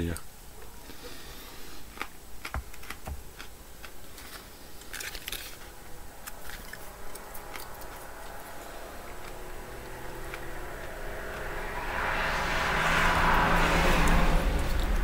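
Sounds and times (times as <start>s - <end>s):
plastic crinkling: 4.1s - 7.7s.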